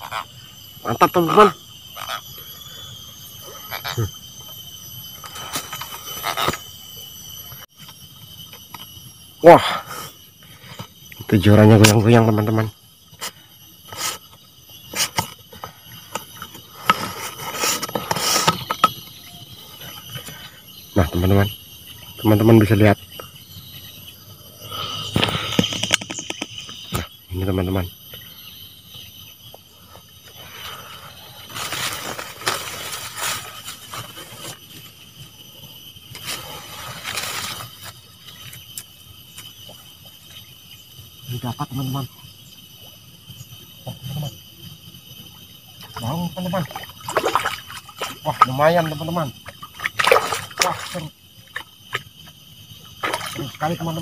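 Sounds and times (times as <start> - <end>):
insects chirring: 0.0 - 54.0
rustling: 31.4 - 34.7.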